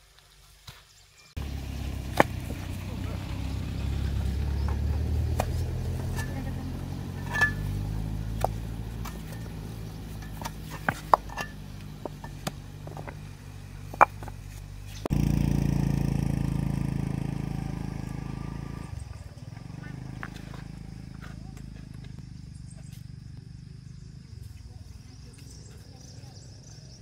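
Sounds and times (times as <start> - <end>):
stones clicking and knocking: 7.2 - 15.1.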